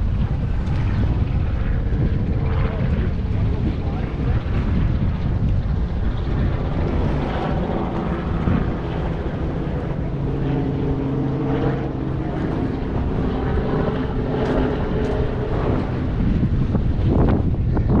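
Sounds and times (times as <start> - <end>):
engine drone: 0.0 - 18.0
wind rumbling on microphone: 0.0 - 18.0.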